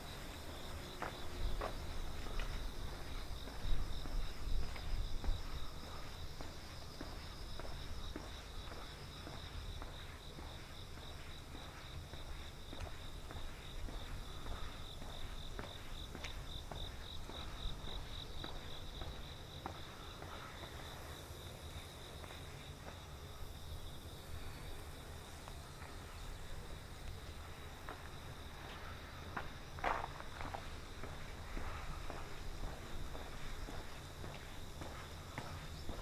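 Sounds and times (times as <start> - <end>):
footsteps: 0.0 - 23.4, 25.3 - 36.0
crickets chirping: 0.0 - 36.0.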